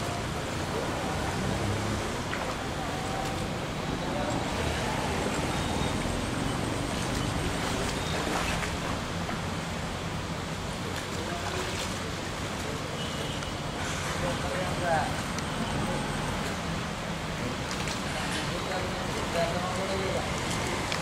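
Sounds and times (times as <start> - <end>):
floodwater flowing: 0.0 - 21.0.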